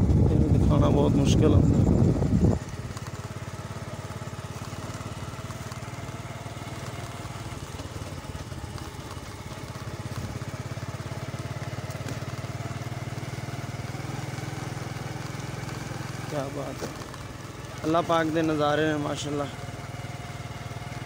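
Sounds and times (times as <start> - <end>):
motorcycle engine running: 0.0 - 21.0.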